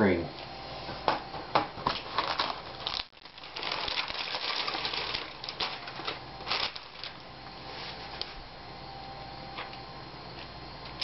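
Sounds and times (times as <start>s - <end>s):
foil wrapping crinkling: 1.8s - 8.3s.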